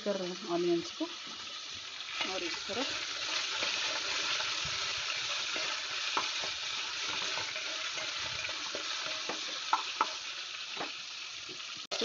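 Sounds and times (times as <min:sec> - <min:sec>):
onions sizzling in hot oil: 0:00.0 - 0:12.0
spatula scraping metal pot: 0:02.2 - 0:10.2.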